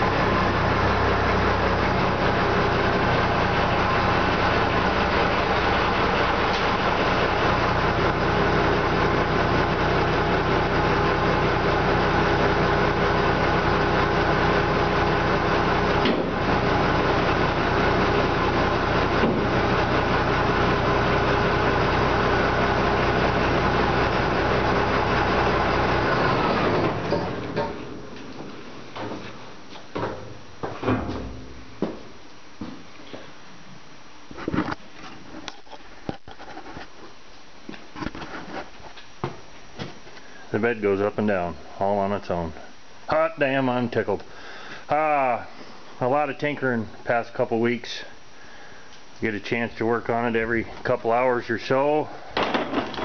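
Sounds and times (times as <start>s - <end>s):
truck engine idling: 0.0s - 29.3s.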